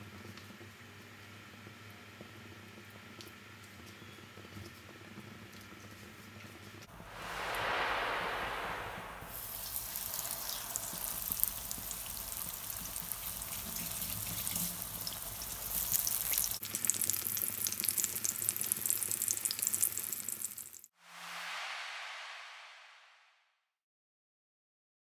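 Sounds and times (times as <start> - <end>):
oil sizzling and popping: 9.4 - 20.9.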